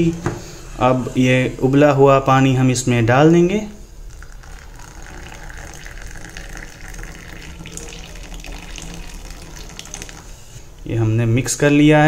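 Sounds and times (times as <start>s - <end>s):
water pouring into a cup: 3.8s - 10.9s.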